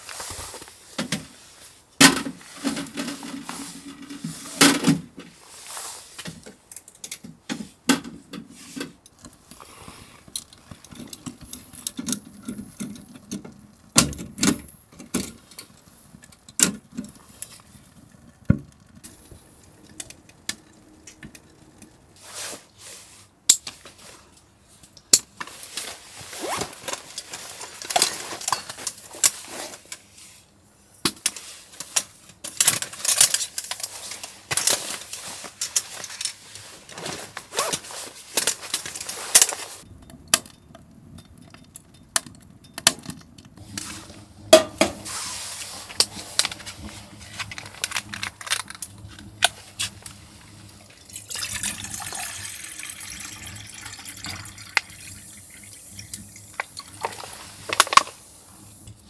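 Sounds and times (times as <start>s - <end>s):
rustling: 0.0s - 6.6s, 21.5s - 30.5s, 31.4s - 39.9s, 43.6s - 51.2s, 56.5s - 58.9s.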